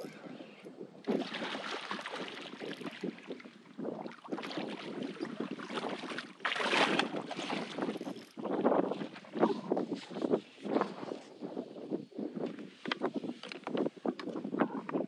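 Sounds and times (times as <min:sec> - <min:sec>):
wind rushing over microphone: 0:00.0 - 0:15.0
water splashing around kayak: 0:01.0 - 0:11.2.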